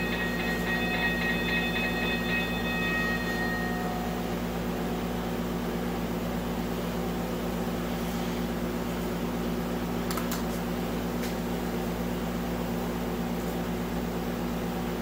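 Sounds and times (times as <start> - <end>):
electronic crossing bell: 0.0 - 5.1
low mechanical hum: 0.0 - 15.0.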